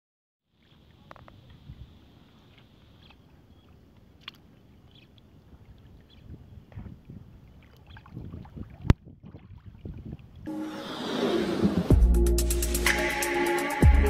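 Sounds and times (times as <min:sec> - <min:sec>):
water flowing and rippling: 0:00.5 - 0:12.0.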